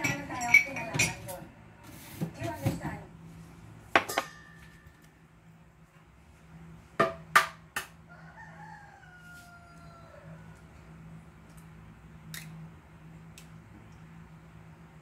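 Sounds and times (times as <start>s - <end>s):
rooster crowing: 8.0s - 10.9s.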